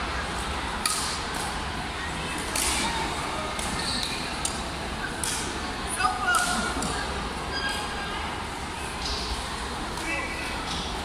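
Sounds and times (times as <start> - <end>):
background chatter: 0.0 - 11.0
rackets hitting shuttlecock: 0.8 - 1.6, 2.4 - 2.9, 5.2 - 5.5.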